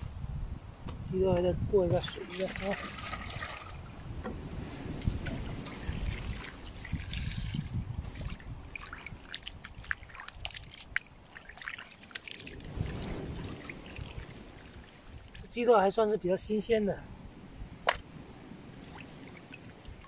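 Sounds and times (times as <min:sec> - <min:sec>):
water pouring from a bottle: 0:02.0 - 0:04.0, 0:05.0 - 0:15.5.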